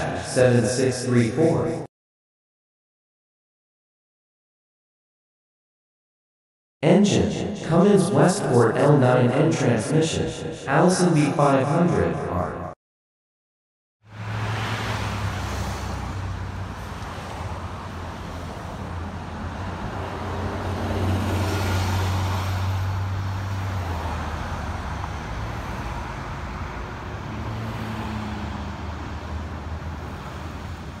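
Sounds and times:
road traffic: 0:14.0 - 0:31.0
bus engine low drone: 0:15.9 - 0:27.8.

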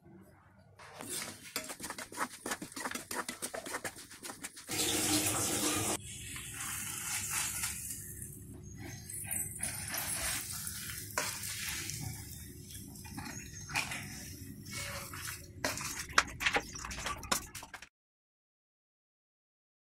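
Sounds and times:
oil sizzling: 0:03.6 - 0:08.4, 0:09.6 - 0:16.4
chillies crackling in hot oil: 0:04.7 - 0:08.4, 0:09.6 - 0:17.8.

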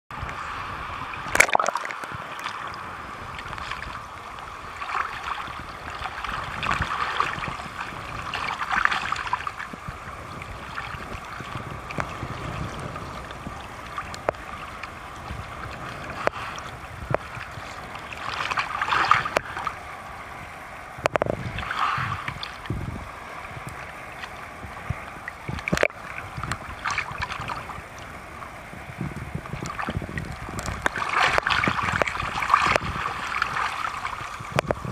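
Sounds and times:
sea water sloshing and splashing: 0:00.2 - 0:34.9
sharp slaps of water: 0:01.3 - 0:02.6, 0:29.6 - 0:34.8.

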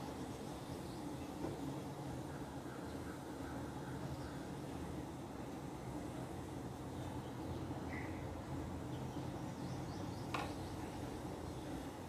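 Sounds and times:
low background hum and hiss: 0:00.0 - 0:12.0.

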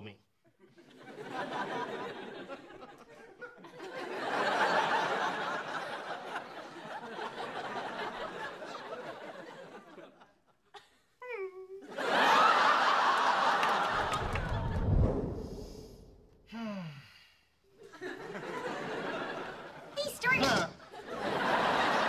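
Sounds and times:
audience laughing: 0:00.6 - 0:10.9, 0:11.8 - 0:15.0, 0:17.8 - 0:22.0.

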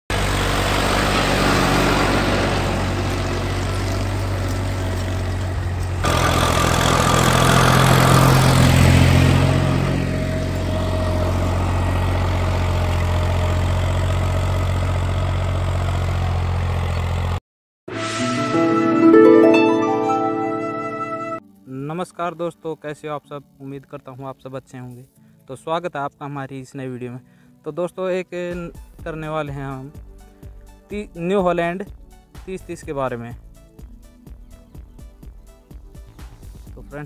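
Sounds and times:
tractor diesel engine running: 0:00.1 - 0:17.4.

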